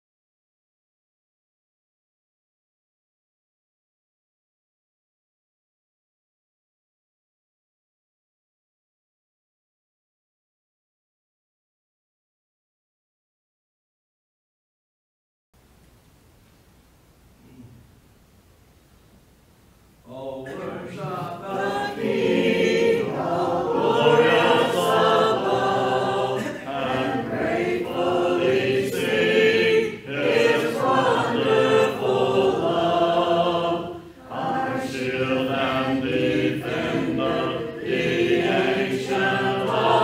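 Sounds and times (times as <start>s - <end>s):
congregation singing a hymn: 20.1s - 40.0s.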